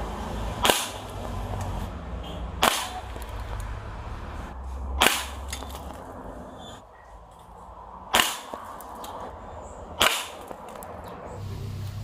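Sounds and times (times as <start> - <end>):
airgun shots: 0.6 - 1.4, 2.6 - 3.3, 5.0 - 5.9, 8.1 - 9.0, 10.0 - 10.8.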